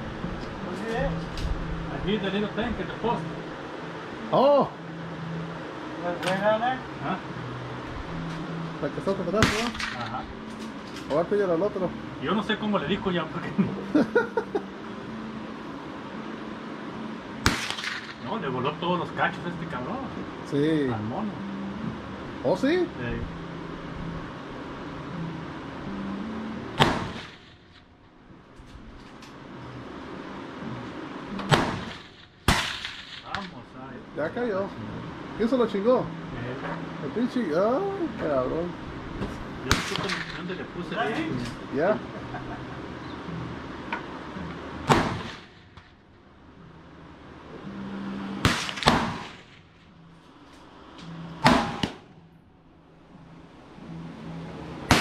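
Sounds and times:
gunshot: 0:09.4 - 0:10.1, 0:17.4 - 0:18.1, 0:26.8 - 0:27.4, 0:31.5 - 0:33.4, 0:39.7 - 0:40.4, 0:44.9 - 0:45.5, 0:48.4 - 0:49.4, 0:51.4 - 0:52.0
rifle shots echoing: 0:17.4 - 0:18.2, 0:31.5 - 0:33.4, 0:39.7 - 0:40.4, 0:48.4 - 0:49.5.

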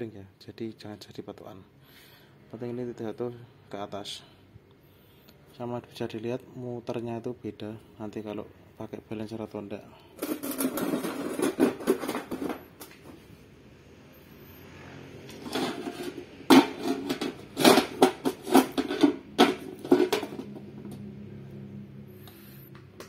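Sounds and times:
metal engine parts clattering: 0:10.2 - 0:13.1, 0:15.3 - 0:21.0.

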